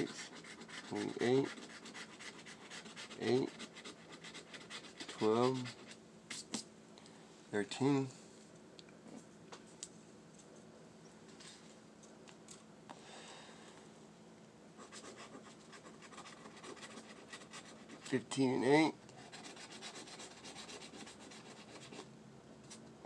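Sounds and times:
scratching lottery ticket: 0.0 - 6.0, 14.8 - 18.2, 19.2 - 22.1.

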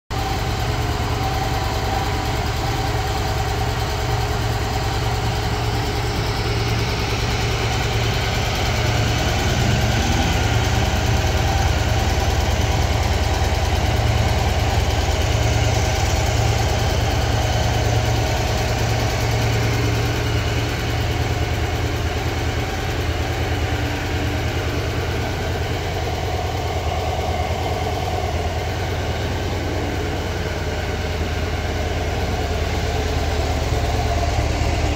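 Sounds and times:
motorcycle engine idling: 0.1 - 34.9.

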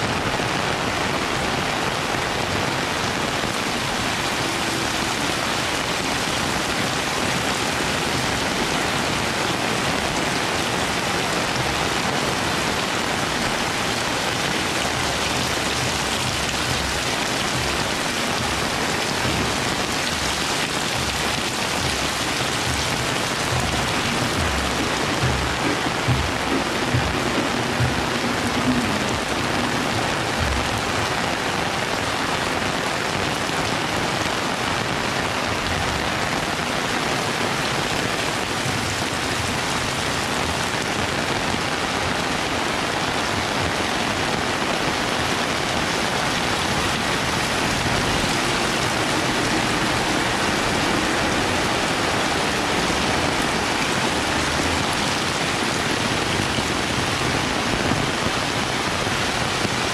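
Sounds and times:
heavy rain: 0.0 - 59.9.

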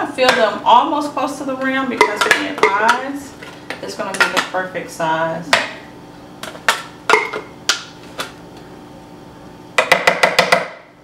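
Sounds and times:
spoon tapping plastic pitcher: 9.8 - 10.7.

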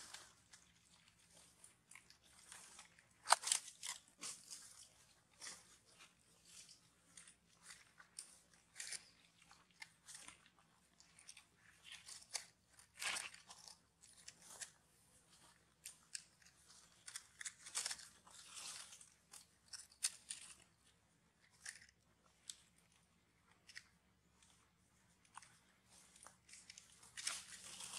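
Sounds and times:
dry leaves crackling and rustling: 27.2 - 27.9.

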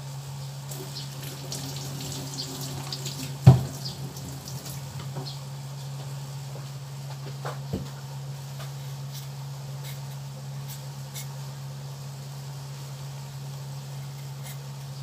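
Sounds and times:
steady low hum: 0.0 - 15.0
tap water running into sink: 0.7 - 5.4.

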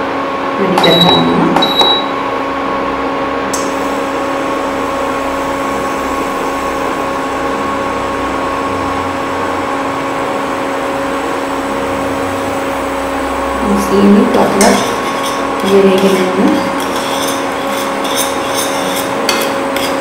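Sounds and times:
cooling fan running: 0.0 - 20.0
electrical hum: 0.0 - 20.0
faint high whine: 3.5 - 15.4.

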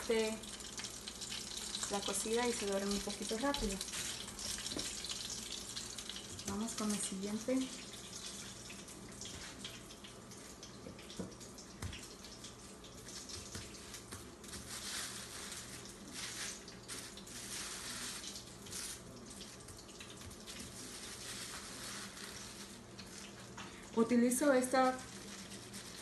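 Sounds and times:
oil sizzling: 0.0 - 26.0
plastic sheet crinkling: 13.6 - 23.8, 24.4 - 26.0.

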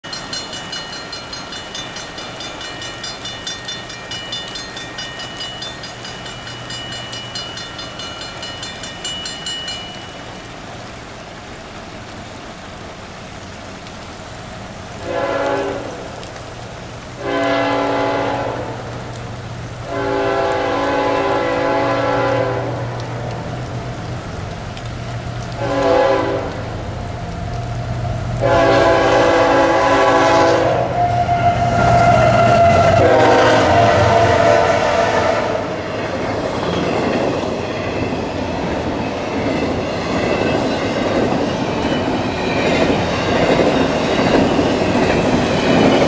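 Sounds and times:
railroad crossing bell ringing: 0.0 - 10.6, 36.6 - 46.0
steady rain: 0.0 - 46.0
locomotive air horn blasts: 15.0 - 16.1, 17.2 - 18.8, 19.9 - 22.8, 25.6 - 26.6, 28.4 - 35.8.

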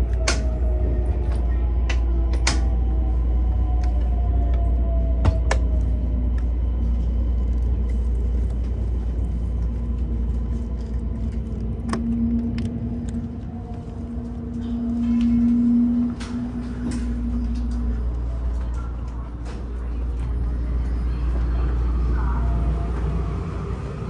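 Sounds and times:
train running gear rumble: 0.0 - 24.0.

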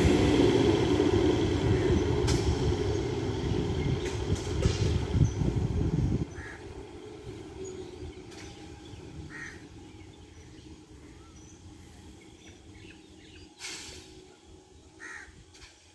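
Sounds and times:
distant train rumble: 0.0 - 15.9
birds calling: 6.2 - 13.7
crow cawing: 9.3 - 9.6, 15.0 - 15.3.

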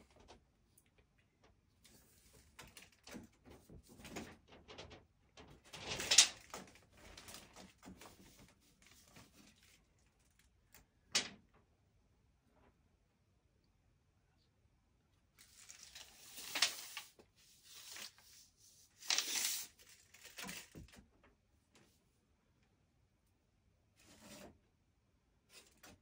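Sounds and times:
tape measure blade scraping: 19.0 - 19.8.

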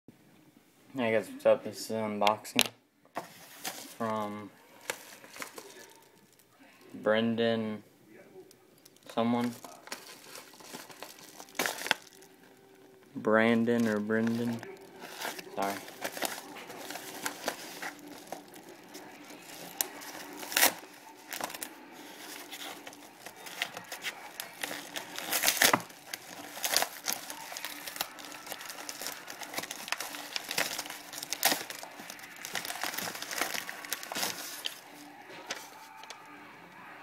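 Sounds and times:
padded envelope crinkling: 3.2 - 6.4, 8.9 - 12.6, 13.5 - 36.2
sharp paper crackles: 4.8 - 6.4, 8.9 - 12.3, 13.7 - 36.2.

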